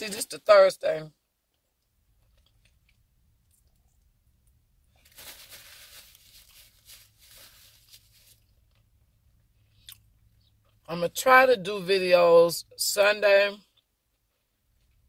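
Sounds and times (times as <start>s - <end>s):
paper napkin rustling: 5.0s - 8.4s.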